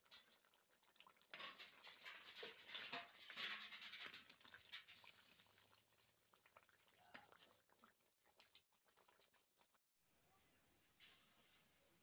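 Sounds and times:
curry bubbling and crackling: 0.0 - 9.8.

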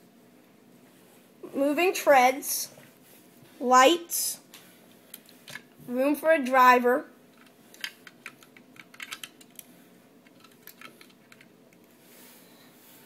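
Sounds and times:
plastic lego pieces clicking: 7.4 - 9.7, 10.3 - 11.5.

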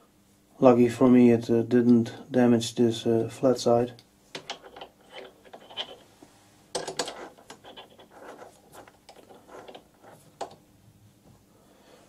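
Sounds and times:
metal clicking and scraping: 4.3 - 6.1, 6.8 - 10.6.

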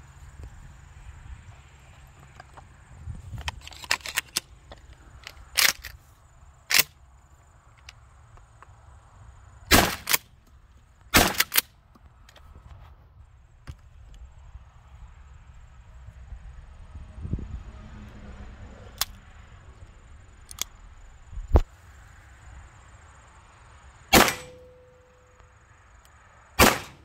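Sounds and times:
shotgun pump action: 6.7 - 6.9, 24.2 - 24.8, 26.6 - 27.0
shotgun shots: 9.7 - 10.2, 11.2 - 11.6, 24.1 - 24.8, 26.6 - 27.0.

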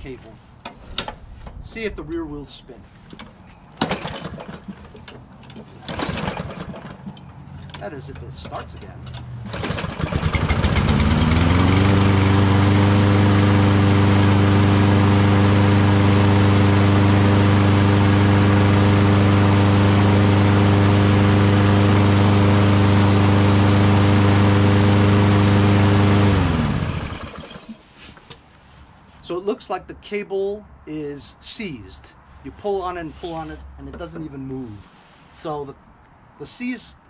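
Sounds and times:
lawn mower engine running: 3.8 - 27.8.

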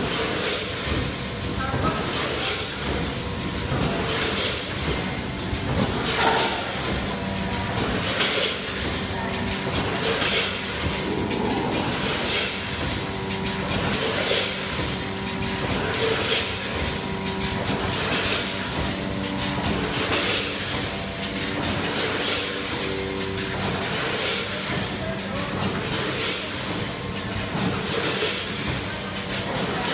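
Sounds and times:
mechanical hum: 0.0 - 29.9
packaging machine hissing rush: 9.8 - 13.2.

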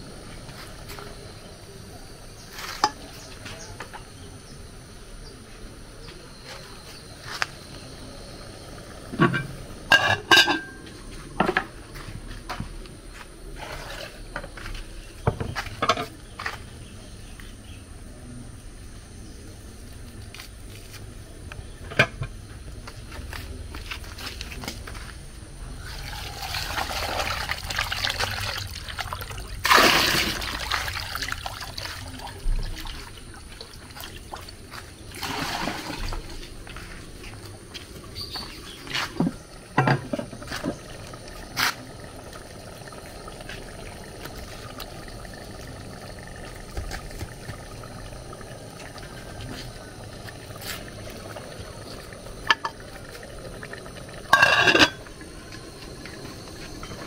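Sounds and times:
pot lid clattering: 9.2 - 10.8, 54.3 - 55.1
water splashing into glass bowl: 54.3 - 55.0.

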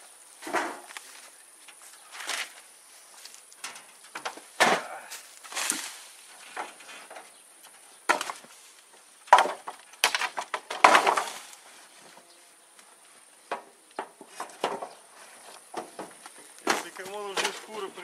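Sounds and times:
wooden boards clattering: 0.4 - 1.0, 3.6 - 12.3, 13.4 - 18.0.

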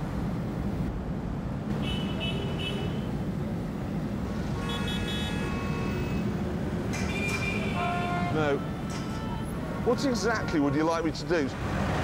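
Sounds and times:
traffic engines rumbling: 0.0 - 12.0
car horns honking: 4.5 - 6.4, 7.0 - 10.8.

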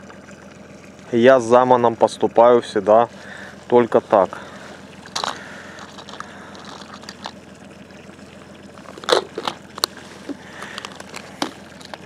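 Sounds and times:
fishing tackle clicks and knocks: 5.0 - 7.4, 8.8 - 12.0.

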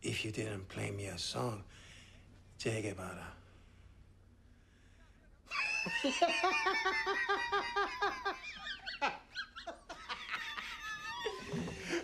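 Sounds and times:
man laughing heartily: 5.5 - 12.0.

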